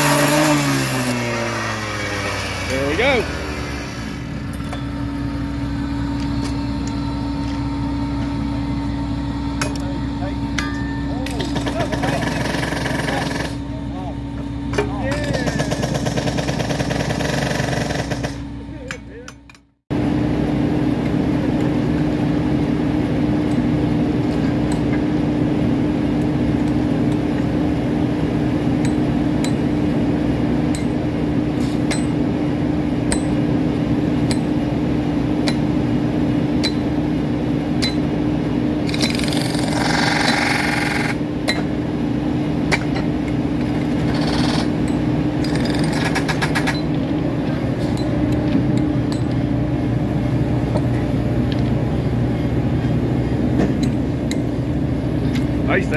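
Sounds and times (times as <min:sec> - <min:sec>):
machine engine humming: 0:00.0 - 0:19.2.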